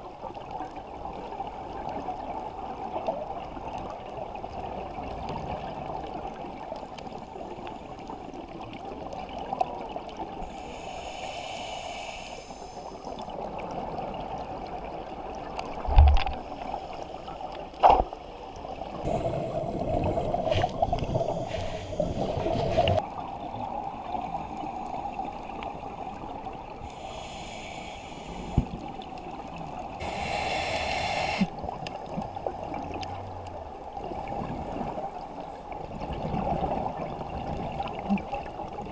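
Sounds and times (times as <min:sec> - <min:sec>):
underwater bubbling: 0:00.0 - 0:38.9
muffled underwater hiss: 0:06.0 - 0:13.7, 0:14.6 - 0:23.4, 0:24.0 - 0:36.0.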